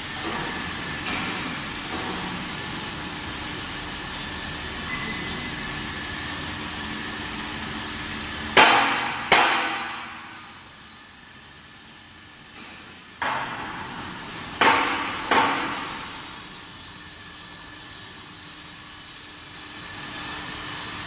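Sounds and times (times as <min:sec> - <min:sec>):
steady mechanical hum: 0:00.0 - 0:21.0.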